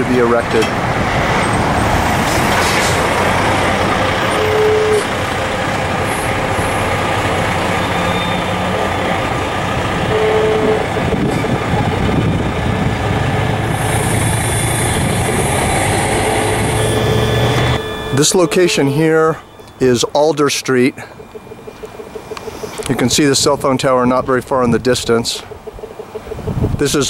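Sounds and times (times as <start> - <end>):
street traffic: 0.0 - 27.0
truck running nearby: 0.0 - 27.0
short high tones: 4.2 - 5.2, 10.0 - 11.0, 13.8 - 24.4.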